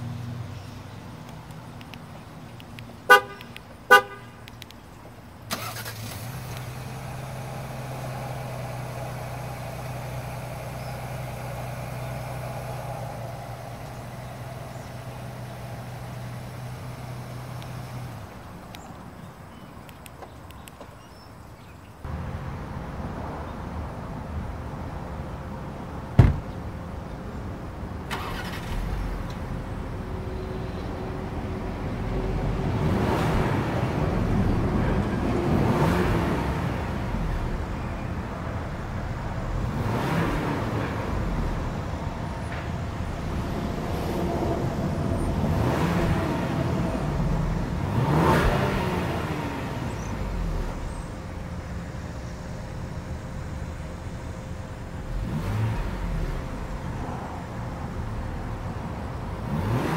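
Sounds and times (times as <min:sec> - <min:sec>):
car engine starting and idling: 0:00.0 - 0:21.2, 0:22.0 - 0:59.9
loud thump: 0:26.2 - 0:26.6
car engine revving: 0:31.9 - 0:37.8, 0:39.4 - 0:51.5, 0:54.9 - 0:59.9.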